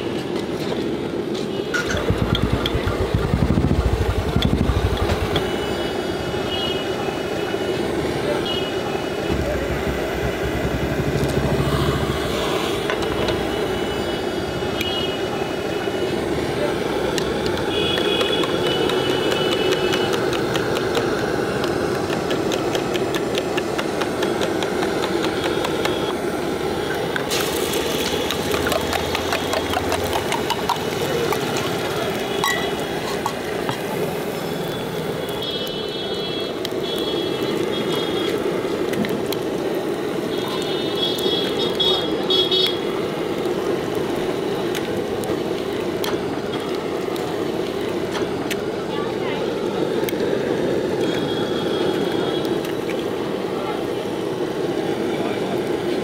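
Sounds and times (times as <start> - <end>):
traffic and engines hum: 0.0 - 56.0
cooking utensils clinking: 32.4 - 33.4.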